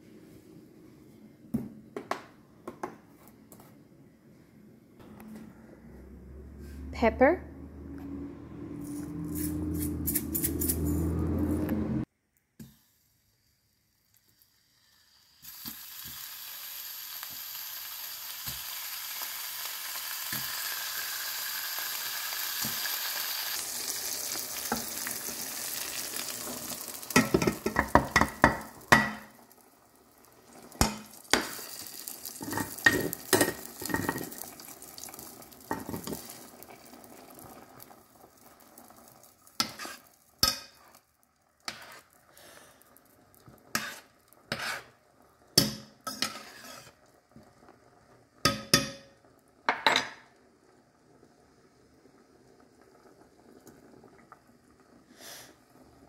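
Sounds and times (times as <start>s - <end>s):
metal clinks and scrapes: 8.8s - 11.4s
bacon sizzling in a pan: 13.0s - 50.3s.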